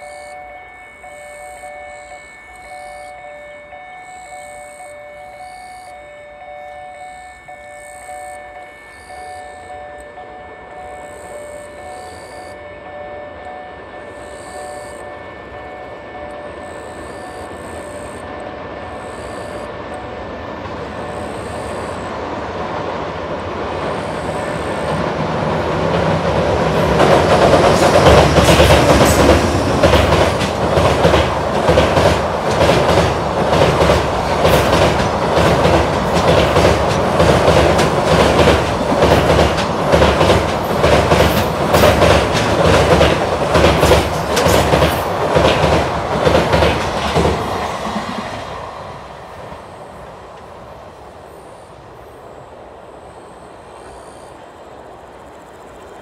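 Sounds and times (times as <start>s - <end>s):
train rumbling: 0.0s - 56.0s
wheels clickety-clack on rail joints: 8.4s - 52.1s.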